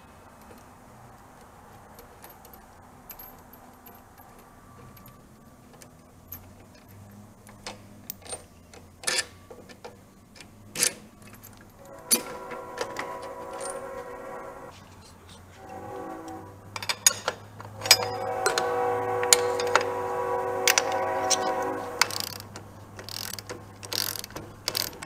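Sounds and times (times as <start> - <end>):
metal bolt clicks and clinks: 1.4 - 13.8, 16.7 - 18.7, 19.3 - 19.9, 20.7 - 25.0
metallic ringing tone: 11.8 - 14.7, 17.8 - 22.3
sharp metal clanks: 16.8 - 20.0.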